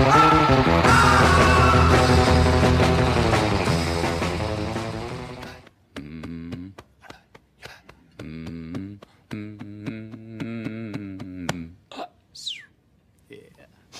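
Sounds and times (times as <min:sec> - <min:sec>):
man humming a low chant: 0:05.4 - 0:12.0.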